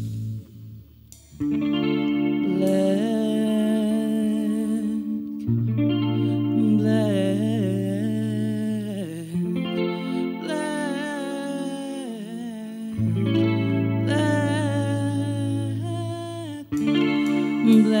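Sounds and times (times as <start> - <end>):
woman singing: 2.2 - 18.0
live band playing: 16.8 - 18.0.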